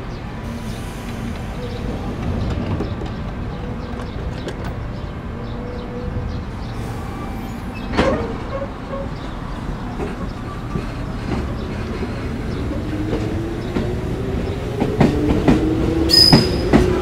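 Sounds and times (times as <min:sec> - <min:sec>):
electric train rumble: 0:00.0 - 0:17.0
train clank: 0:00.8 - 0:04.8, 0:07.5 - 0:14.0, 0:14.7 - 0:17.0.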